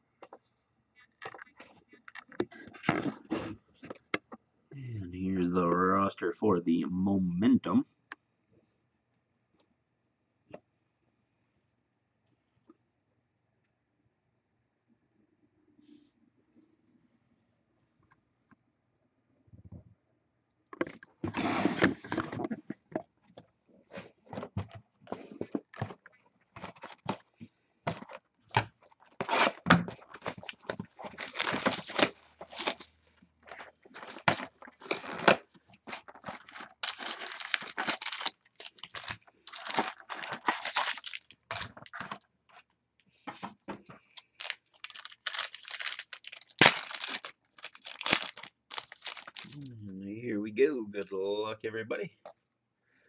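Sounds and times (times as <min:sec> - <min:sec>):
cardboard tearing and crinkling: 0:21.2 - 0:22.5, 0:28.0 - 0:42.2, 0:44.3 - 0:49.6.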